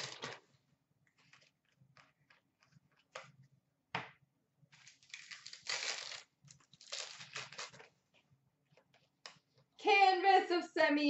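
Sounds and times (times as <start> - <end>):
foil pack crinkling and tearing: 0.0 - 0.4, 4.8 - 7.9.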